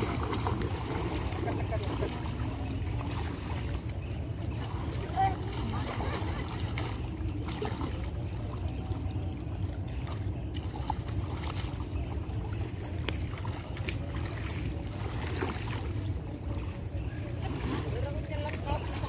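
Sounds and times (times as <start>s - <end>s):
pond water sloshing: 0.0s - 19.0s
small sharp splashes: 0.0s - 19.0s.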